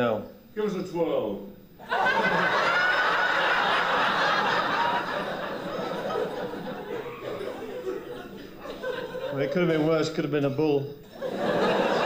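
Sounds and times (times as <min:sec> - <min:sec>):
audience laughing: 0:01.8 - 0:10.0, 0:11.1 - 0:12.0.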